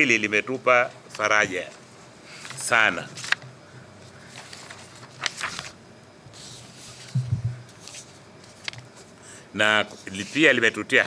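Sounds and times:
paper rustling: 1.1 - 3.4, 4.1 - 9.1
soft low thump: 7.1 - 7.6.

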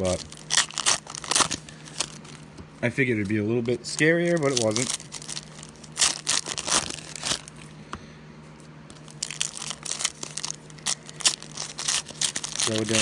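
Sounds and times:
foil wrappers crinkling and tearing: 0.0 - 7.7, 8.9 - 13.0.

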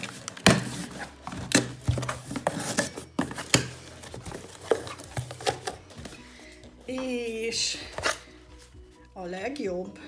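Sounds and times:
products clicking and knocking: 0.0 - 6.2.

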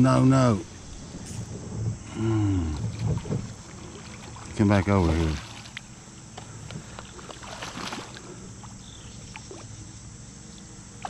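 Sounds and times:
fish splashing in water: 2.7 - 9.9.

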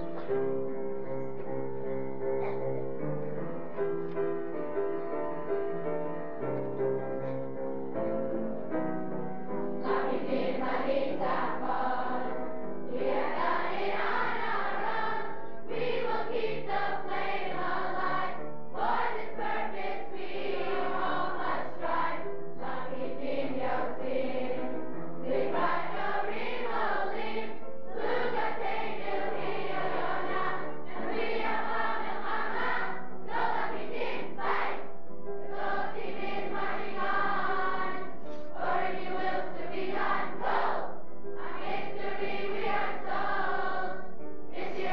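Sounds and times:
group singing in chorus: 9.8 - 44.9.

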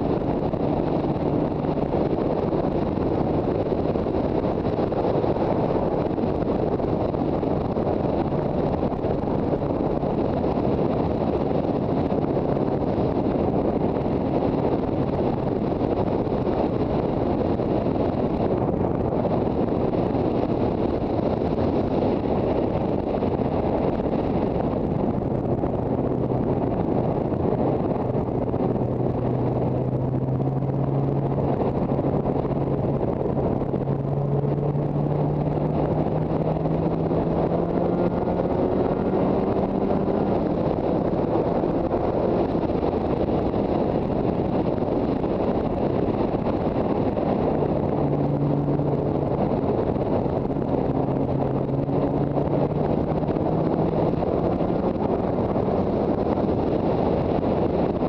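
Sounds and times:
wind rushing over microphone: 0.0 - 58.0
motorcycle engine: 19.0 - 58.0.

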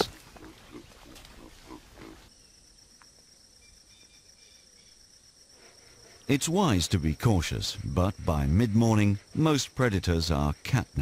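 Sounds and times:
baboon grunting: 0.0 - 2.3
insects chirring: 0.0 - 11.0.

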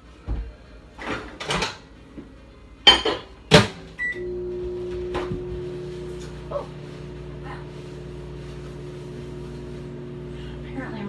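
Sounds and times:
microwave humming: 1.1 - 11.0
microwave beep: 4.0 - 5.6.

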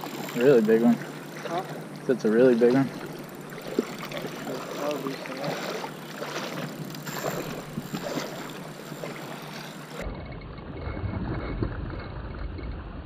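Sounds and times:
fish thrashing in water: 2.9 - 10.0.

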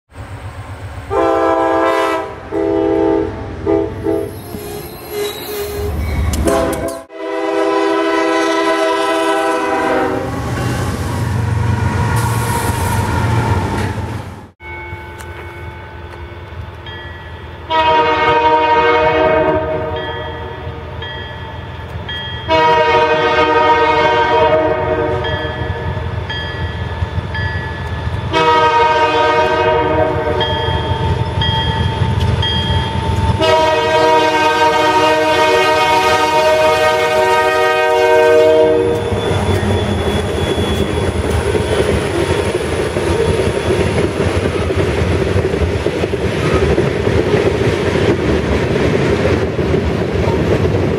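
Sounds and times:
train wheels on rails: 0.1 - 7.1, 8.1 - 20.3, 20.9 - 50.9
locomotive air horn blasts: 1.1 - 4.4, 5.8 - 10.7, 17.7 - 20.9, 22.5 - 25.4, 28.3 - 30.5, 33.4 - 39.4.

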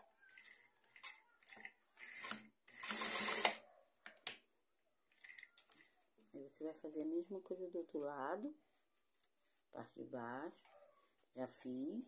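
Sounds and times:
sewing machine stitching: 0.0 - 3.6.

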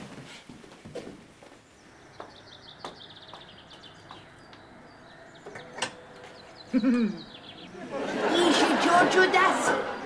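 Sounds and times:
small birds twittering: 1.5 - 7.8.

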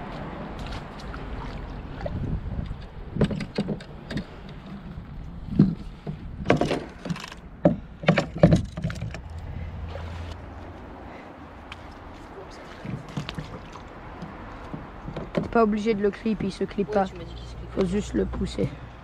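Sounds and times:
fishing rods knocking on plastic: 12.8 - 15.6.

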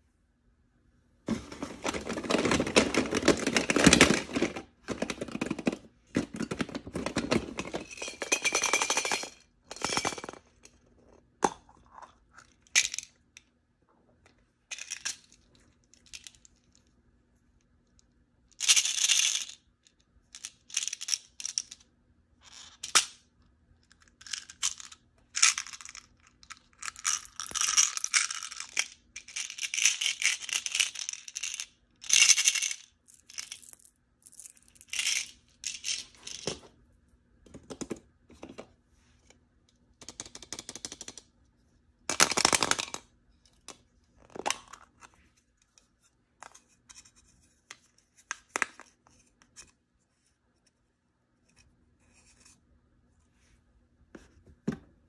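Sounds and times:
plastic toys clattering: 1.3 - 10.7, 24.0 - 36.7, 42.1 - 43.1
plastic capsules clicking: 24.2 - 36.5.

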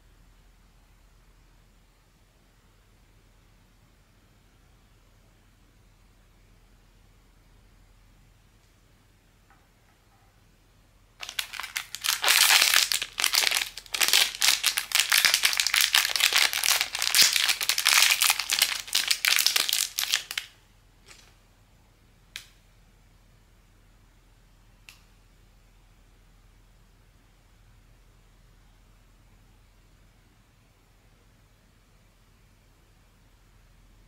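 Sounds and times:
plastic packaging crinkling: 11.2 - 20.5.

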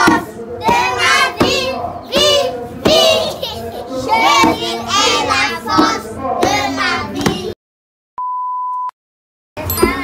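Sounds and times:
children singing together: 0.0 - 7.6
high test-tone beep: 8.2 - 9.0, 9.6 - 10.0.

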